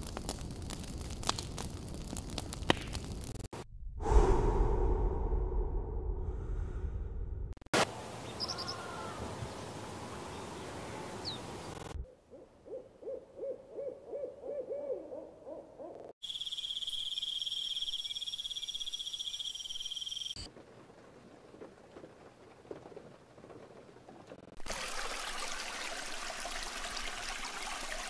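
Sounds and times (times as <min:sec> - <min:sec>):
faint rain: 0:00.0 - 0:03.3, 0:20.4 - 0:28.0
loud rushing ambience: 0:04.0 - 0:07.6
owl hooting: 0:12.3 - 0:20.3.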